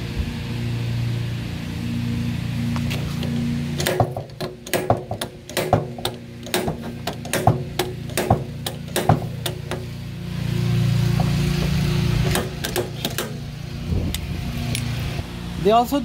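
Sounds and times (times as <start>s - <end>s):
low hum: 0.0s - 15.7s
hammer blows on steel panel: 3.8s - 9.9s.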